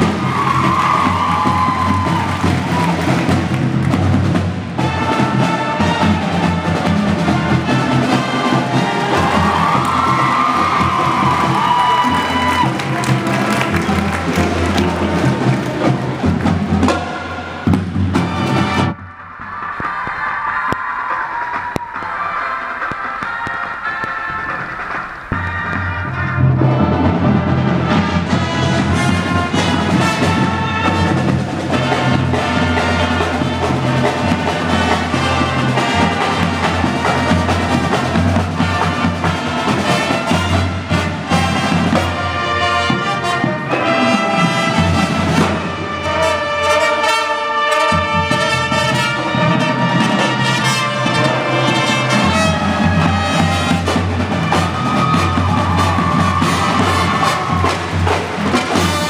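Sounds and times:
marching drums: 0.0s - 59.0s
trumpets: 0.0s - 59.0s.

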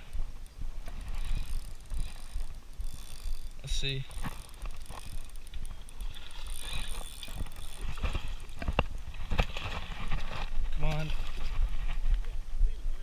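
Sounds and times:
fishing reel cranking: 0.0s - 9.9s.

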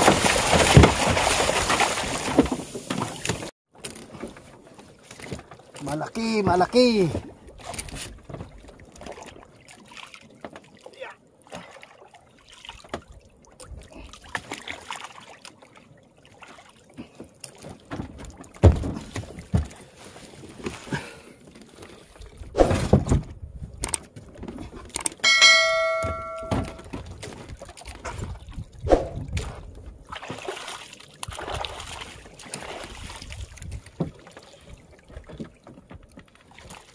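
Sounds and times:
fish thudding into wooden boat: 0.0s - 3.5s.

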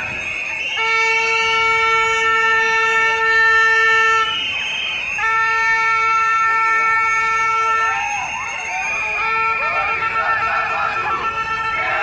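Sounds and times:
crowd voices: 0.0s - 12.0s
plastic horn blasts: 0.7s - 4.4s, 5.2s - 8.0s, 9.2s - 12.0s.

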